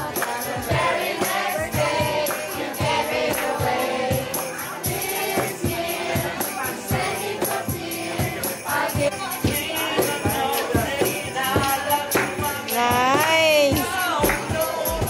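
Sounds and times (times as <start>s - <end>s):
carolers singing: 0.0s - 15.0s
tambourine beat: 0.0s - 15.0s.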